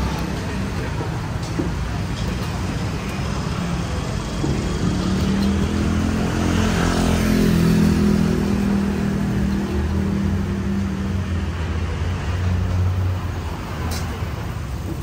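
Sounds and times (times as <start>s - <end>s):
traffic noise: 0.0s - 15.0s
vehicle engine passing: 3.9s - 12.3s.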